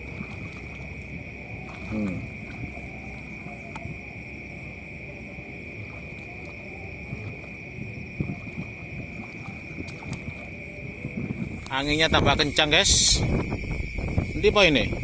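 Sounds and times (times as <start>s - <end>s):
night insects chorus: 0.0s - 15.0s
wading through shallow water: 0.0s - 15.0s
wind rumble on microphone: 0.0s - 15.0s.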